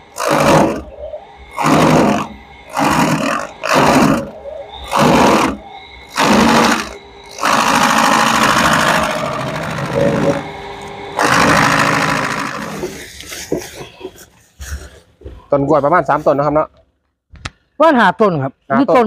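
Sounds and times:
chaff cutter chopping: 0:00.0 - 0:00.9, 0:01.5 - 0:04.3, 0:11.2 - 0:13.0
machine running: 0:00.0 - 0:14.0.

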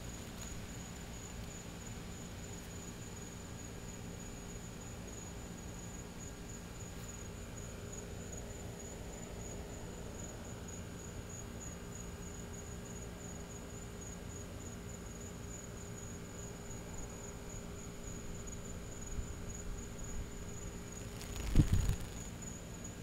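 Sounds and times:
low steady hum: 0:00.0 - 0:23.0
insect trilling: 0:16.0 - 0:22.7.

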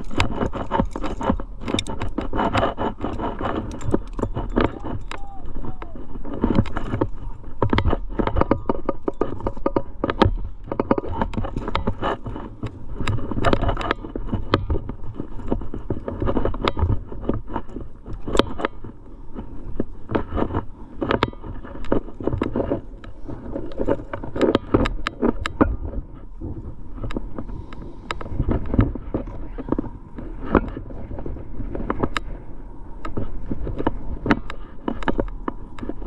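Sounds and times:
climbing gear clinking: 0:00.0 - 0:26.0
hands and shoes scraping rock: 0:00.0 - 0:36.0
microphone handling noise: 0:00.0 - 0:36.0
wind rumble: 0:00.0 - 0:36.0.

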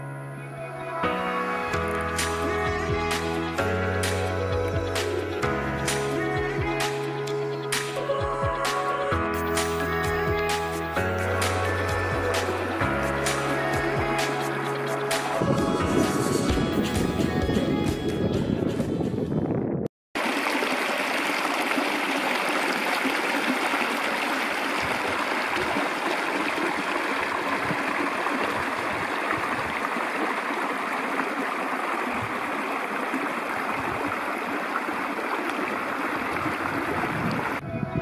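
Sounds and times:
stream flowing over stones: 0:20.2 - 0:37.6.

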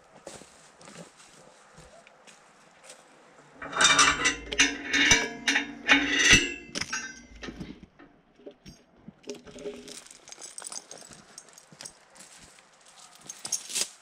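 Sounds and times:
scuffs on leaf litter: 0:00.1 - 0:03.1
metallic clanks and rattles: 0:03.5 - 0:11.0.

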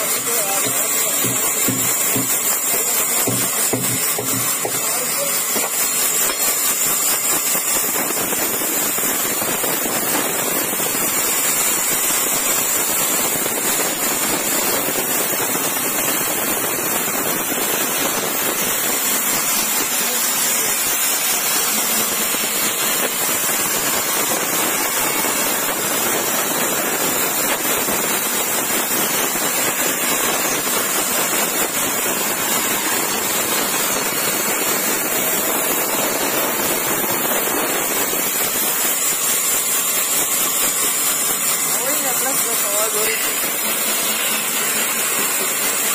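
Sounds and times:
band saw cutting wood: 0:00.0 - 0:07.8, 0:17.8 - 0:25.8, 0:38.2 - 0:45.9.

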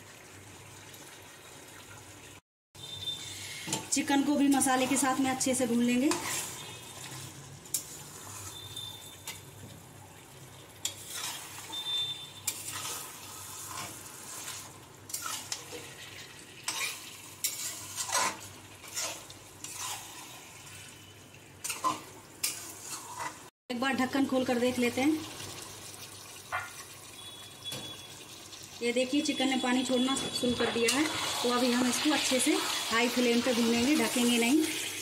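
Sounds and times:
chicken sizzling in oil: 0:00.0 - 0:35.0
spatula scraping metal pan: 0:06.0 - 0:09.3, 0:10.8 - 0:15.8, 0:16.7 - 0:20.4, 0:21.6 - 0:23.4, 0:29.9 - 0:32.8.

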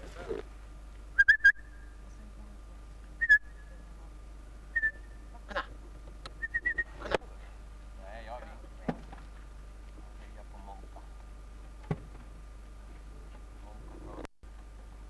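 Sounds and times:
whistled notes: 0:03.2 - 0:03.8, 0:04.7 - 0:05.2, 0:06.4 - 0:07.0.

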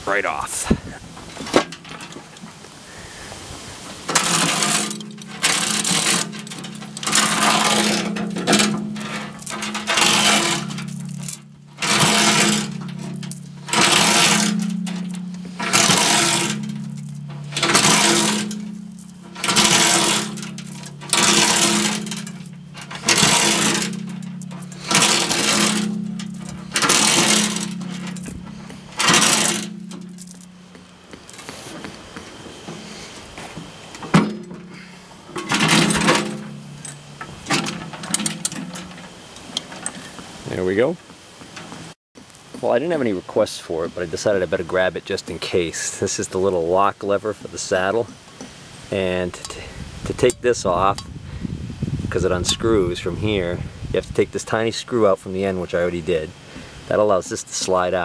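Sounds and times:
motor humming: 0:03.9 - 0:40.2
hammer striking cast iron: 0:04.1 - 0:31.3.

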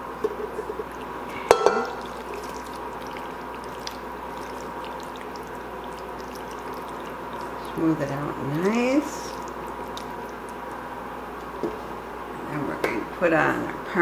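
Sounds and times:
steady background hum: 0:00.0 - 0:14.0
soft stirring of pasta: 0:00.2 - 0:12.2
pot clanking: 0:01.4 - 0:02.6.

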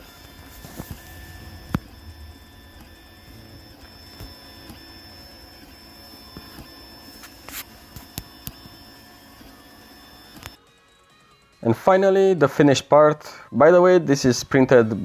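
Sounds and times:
stepper motors whining: 0:00.0 - 0:10.6.

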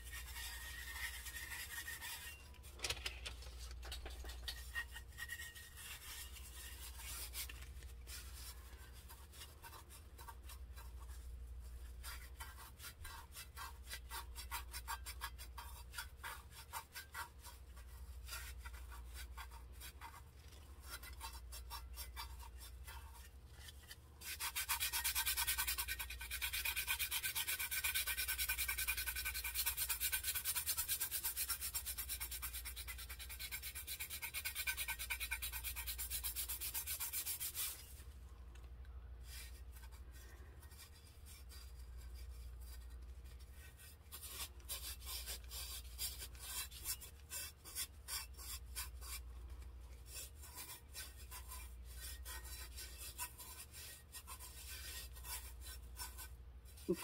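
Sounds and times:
gloved hand rubbing glitter: 0:00.0 - 0:14.4.

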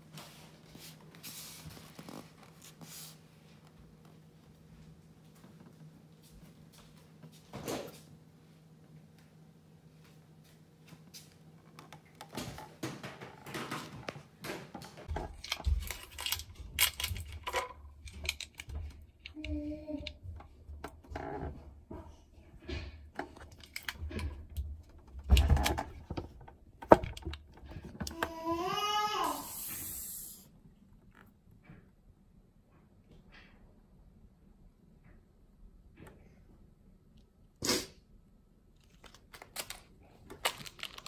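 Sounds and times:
handling clicks and rustles: 0:11.0 - 0:28.2, 0:38.8 - 0:41.0.

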